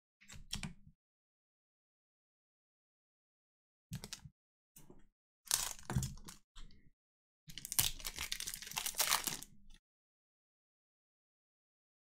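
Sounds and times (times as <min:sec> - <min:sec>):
foil wrapper crinkling and tearing: 0:05.5 - 0:06.4, 0:07.5 - 0:09.5.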